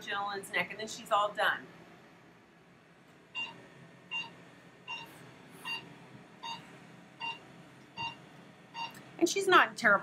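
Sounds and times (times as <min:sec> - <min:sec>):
short electronic beeps: 0:03.4 - 0:06.6.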